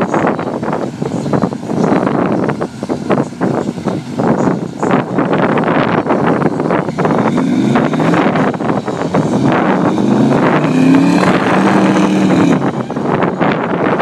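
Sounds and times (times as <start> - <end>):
truck engine revving hard: 5.6 - 14.0.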